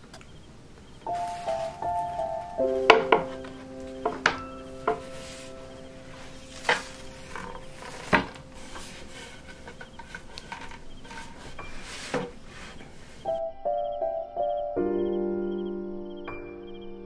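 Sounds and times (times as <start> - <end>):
faint piano notes: 0.0 - 17.0
wooden knocks and clicks: 1.1 - 13.2.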